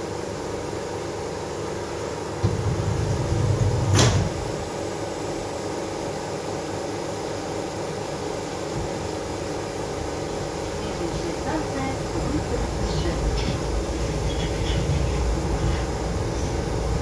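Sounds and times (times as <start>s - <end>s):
monorail car hum: 0.0s - 17.0s
low rumble: 2.4s - 4.7s, 12.1s - 17.0s.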